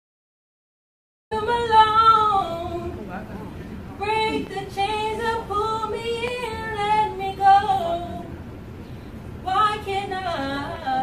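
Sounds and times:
girl singing with vibrato: 0:01.3 - 0:03.0, 0:04.0 - 0:08.5, 0:09.4 - 0:11.0.

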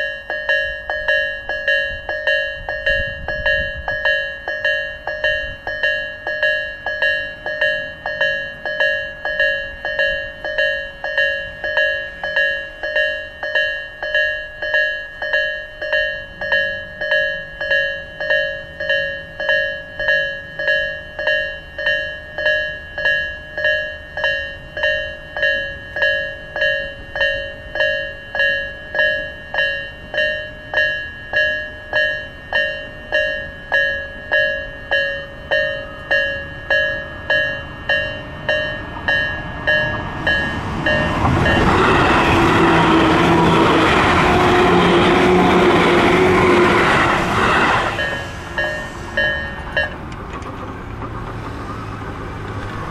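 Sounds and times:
level crossing warning bell: 0:00.0 - 0:50.5
electric train rumble: 0:00.0 - 0:52.9.

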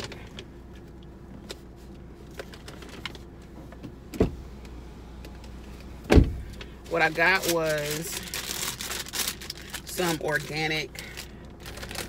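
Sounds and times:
grocery bags rustling: 0:00.0 - 0:00.4, 0:06.6 - 0:12.0
low cabin hum: 0:00.0 - 0:12.0
sharp thump: 0:06.1 - 0:06.5.

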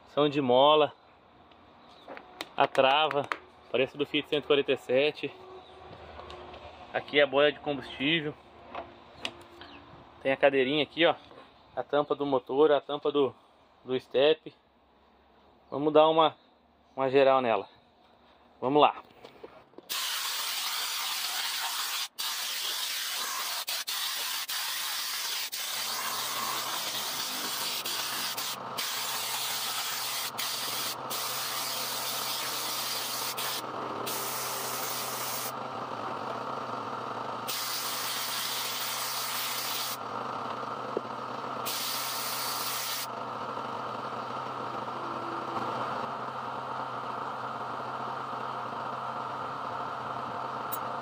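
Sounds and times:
water jet spraying hiss: 0:19.9 - 0:35.5
steady motor hum: 0:24.8 - 0:51.0.

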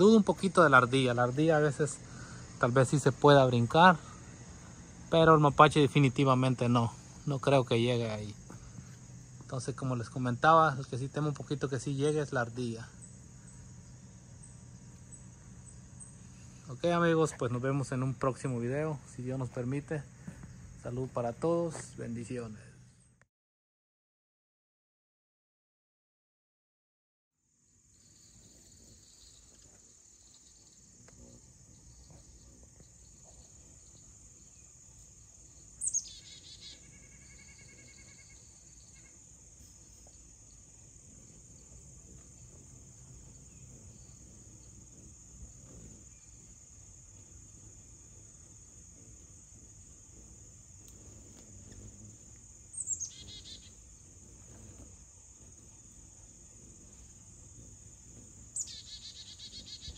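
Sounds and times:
insect chorus: 0:00.0 - 0:23.3, 0:27.4 - 0:59.9
bird chattering trill: 0:35.8 - 0:39.2, 0:47.2 - 0:59.9.

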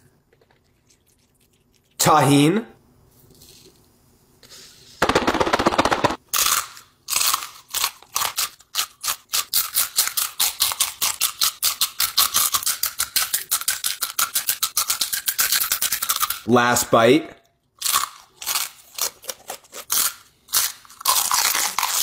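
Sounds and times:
chips crunching close up: 0:17.8 - 0:22.0.

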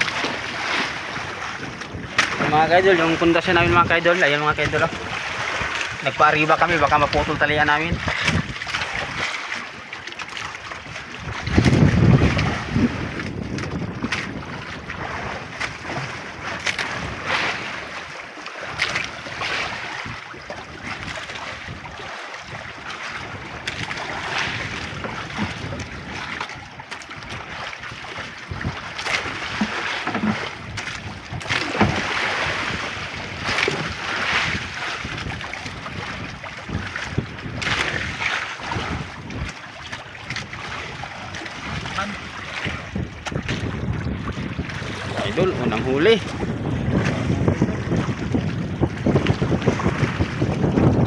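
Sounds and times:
strong wind buffeting microphone: 0:00.0 - 0:09.3, 0:10.8 - 0:18.0, 0:19.2 - 0:51.0
waves splashing against boat hull: 0:00.0 - 0:51.0.

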